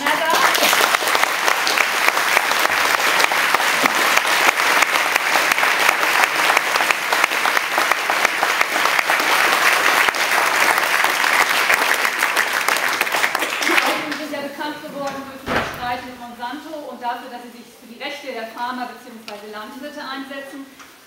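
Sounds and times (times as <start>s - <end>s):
large audience applauding: 0.0s - 14.4s.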